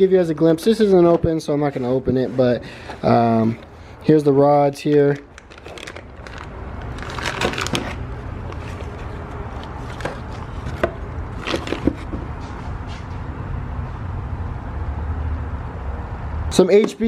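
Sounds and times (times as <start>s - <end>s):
plastic bags crinkling: 5.0s - 10.6s.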